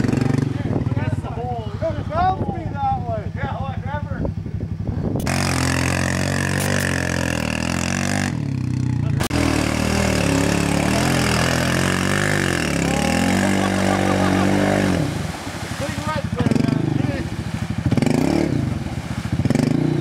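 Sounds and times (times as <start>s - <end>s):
atv engine running: 0.0s - 20.0s
quad churning through mud: 5.2s - 20.0s.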